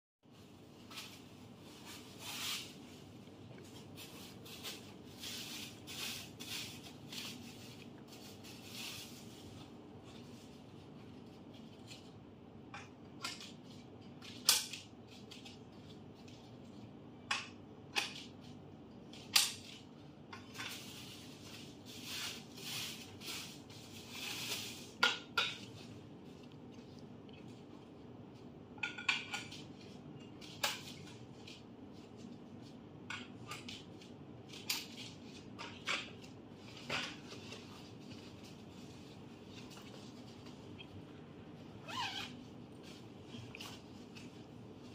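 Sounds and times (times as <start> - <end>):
plastic packaging rustling: 0.3 - 12.3, 18.1 - 27.8, 33.4 - 44.9.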